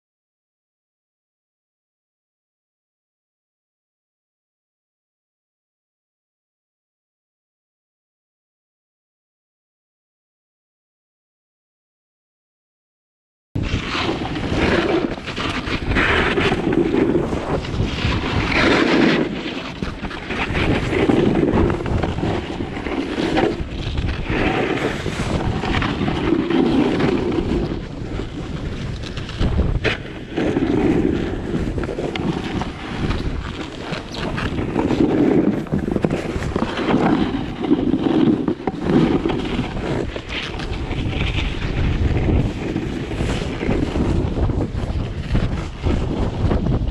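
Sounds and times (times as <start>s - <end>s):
snowboard scraping snow: 13.6s - 46.9s
wind on microphone: 13.6s - 46.9s.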